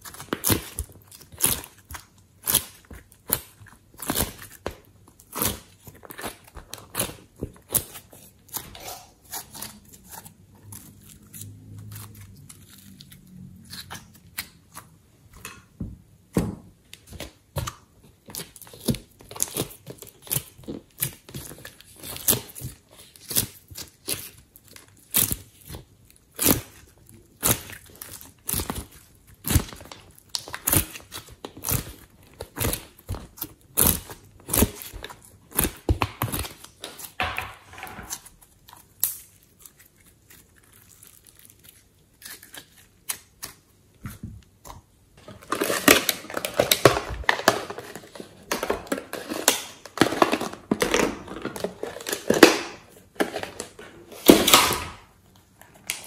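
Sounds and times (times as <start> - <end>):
sticky slime popping: 0.0 - 15.5, 17.0 - 44.9.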